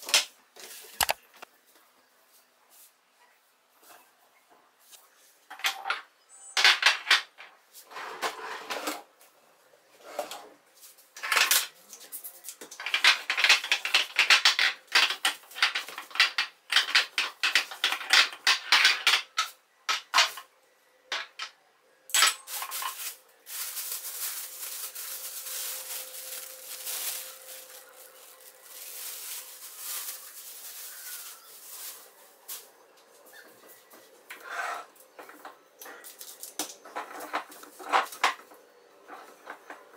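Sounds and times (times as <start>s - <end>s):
rubbing and rustling: 22.5s - 32.7s.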